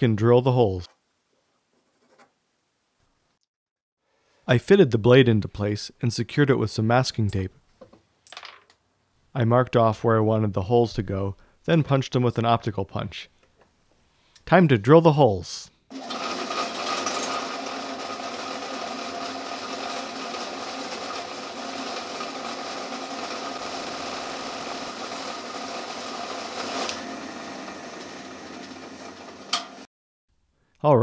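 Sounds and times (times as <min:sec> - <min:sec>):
drill bit drilling wood and steel: 0:15.9 - 0:29.9
drill press motor whine: 0:15.9 - 0:29.9.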